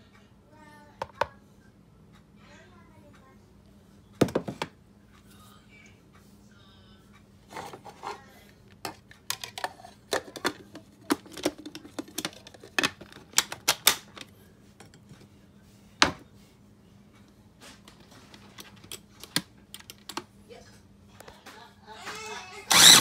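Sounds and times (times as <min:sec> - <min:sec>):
plastic lid clicks and clacks: 0:08.8 - 0:14.3.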